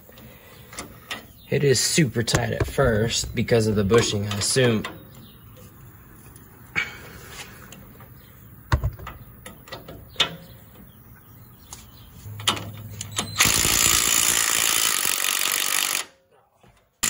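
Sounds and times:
impact wrench hammering: 2.3 - 3.8.

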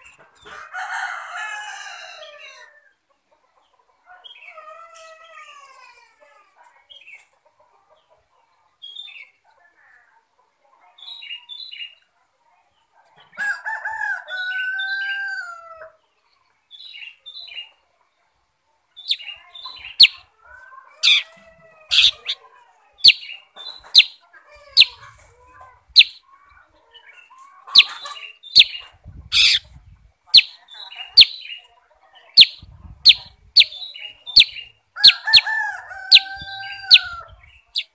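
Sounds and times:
bird chirping: 19.0 - 20.2, 21.0 - 21.3, 21.9 - 22.4, 23.0 - 25.0, 25.9 - 26.3, 27.0 - 29.7, 30.3 - 35.4, 36.1 - 37.9
long falling bird call: 21.9 - 22.4, 26.0 - 26.2, 30.4 - 30.6.

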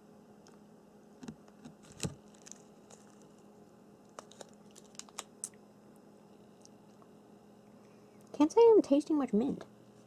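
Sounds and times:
faint room hum: 0.0 - 10.0
candy clicking against teeth: 4.1 - 5.6.

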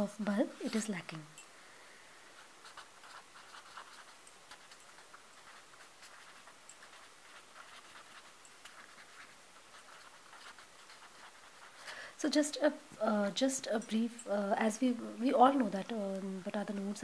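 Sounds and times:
felt-tip pen scratching on paper: 2.4 - 12.0, 16.6 - 17.0.

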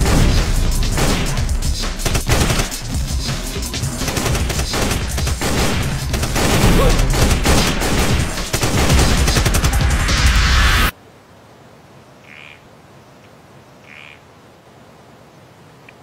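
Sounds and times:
automatic rifle fire: 4.0 - 9.8.

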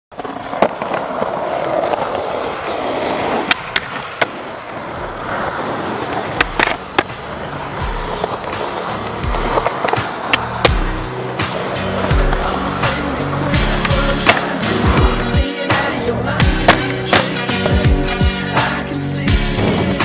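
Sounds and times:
skateboard pops and clacks: 0.1 - 2.2, 2.8 - 7.4, 8.0 - 17.8
skateboard wheels rolling on asphalt: 0.1 - 20.0
music with bass line: 9.1 - 9.6, 10.5 - 20.0.

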